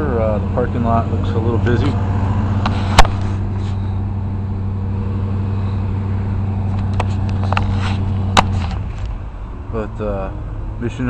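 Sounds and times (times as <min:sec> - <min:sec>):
vehicle engine idling: 0:00.0 - 0:11.0
sharp knock: 0:02.9 - 0:03.4.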